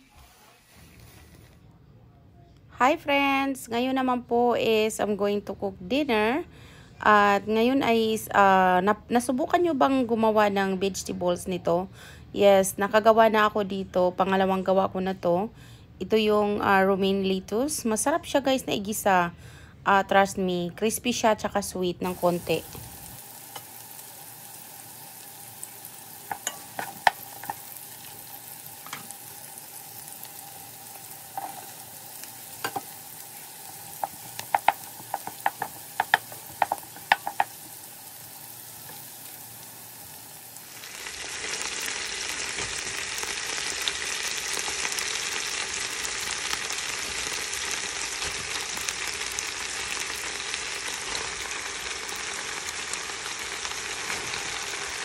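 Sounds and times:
loud sizzle of stir-frying: 20.8 - 55.0
onions frying in oil: 21.6 - 55.0
wooden spatula scraping a pan: 32.5 - 37.7.

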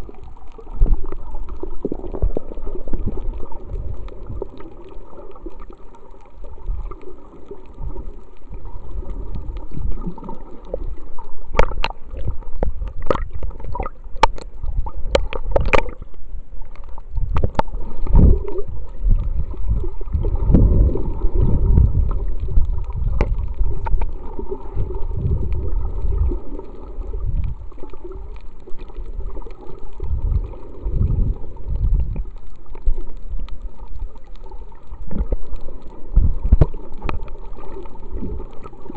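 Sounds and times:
muffled underwater churning gurgle: 0.0 - 38.9.

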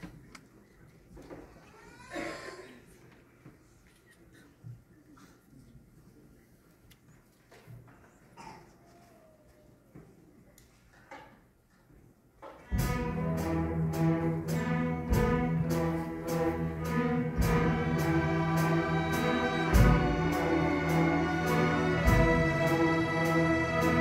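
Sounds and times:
string orchestra playing: 12.7 - 24.0.

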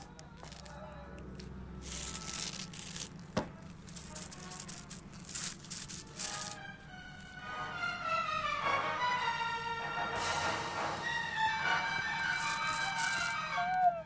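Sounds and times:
low steady hum: 0.0 - 10.0
music with falling notes: 6.2 - 14.0.

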